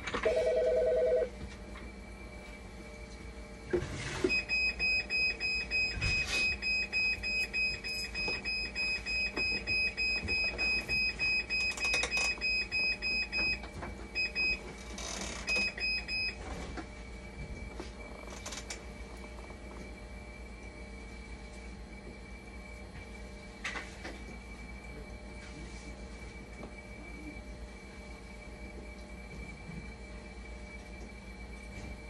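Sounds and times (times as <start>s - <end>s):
steady machine hum: 0.0s - 32.0s
rapid high-pitched alarm beeping: 4.3s - 13.6s.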